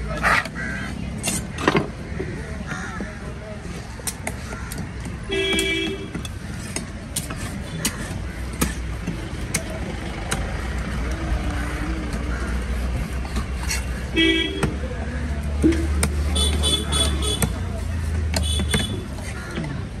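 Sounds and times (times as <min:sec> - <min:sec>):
street traffic rumble: 0:00.0 - 0:20.0
vehicle horn honking: 0:05.3 - 0:06.1, 0:14.2 - 0:14.7, 0:16.4 - 0:17.5.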